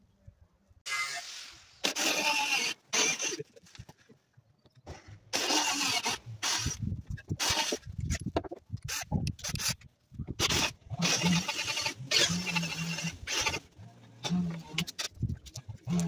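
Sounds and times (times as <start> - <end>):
cordless drill driving screws: 0.9 - 3.4, 5.3 - 6.8, 7.4 - 7.8, 10.4 - 15.1.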